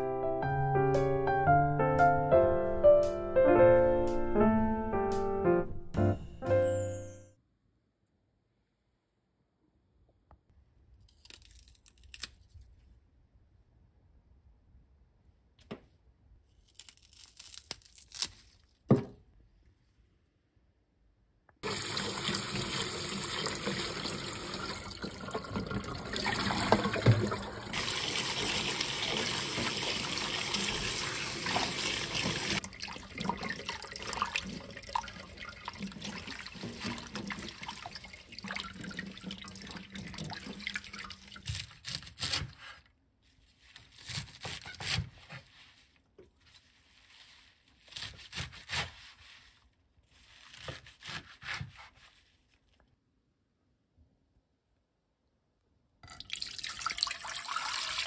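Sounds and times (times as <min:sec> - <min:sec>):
tap water running into sink: 0:21.6 - 0:41.4, 0:56.0 - 0:58.0.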